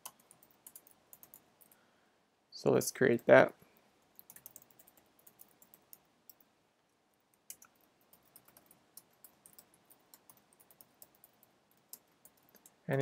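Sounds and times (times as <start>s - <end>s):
faint keyboard keystrokes: 4.2s - 6.5s.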